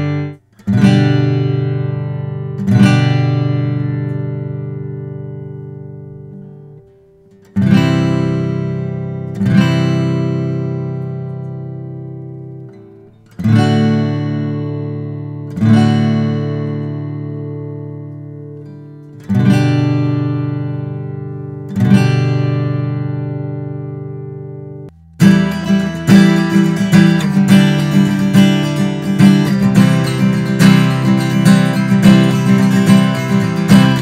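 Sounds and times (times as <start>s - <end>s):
acoustic guitar strummed chords: 0.0s - 34.0s.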